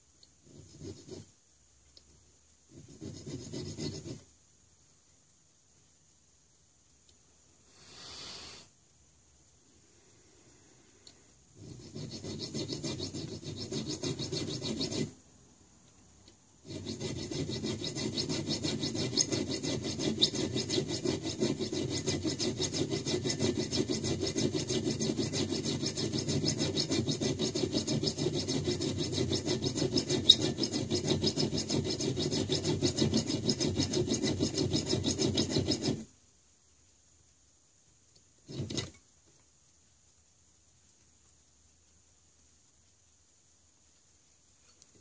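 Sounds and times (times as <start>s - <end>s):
hand file rasping on screw: 0.5s - 1.3s, 2.7s - 4.3s, 11.6s - 15.2s, 16.6s - 36.1s, 38.5s - 38.9s.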